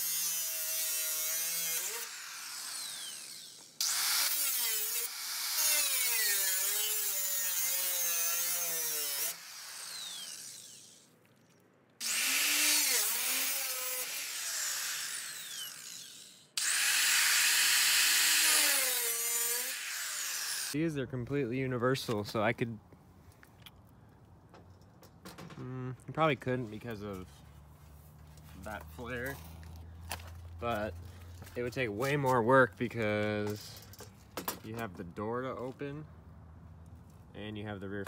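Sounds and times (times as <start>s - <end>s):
angle grinder cutting sheet metal: 0.0s - 11.0s, 12.0s - 20.8s.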